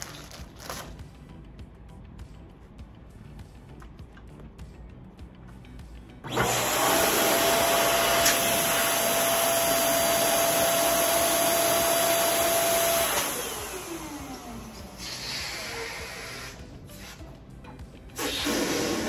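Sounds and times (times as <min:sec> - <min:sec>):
electric pump whining: 0:06.2 - 0:17.3, 0:18.2 - 0:19.0.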